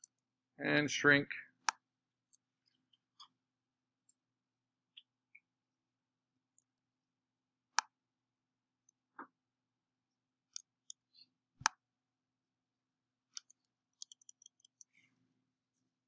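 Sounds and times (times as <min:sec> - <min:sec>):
computer mouse clicks: 0:13.3 - 0:15.0
small ticks: 0:13.3 - 0:15.0.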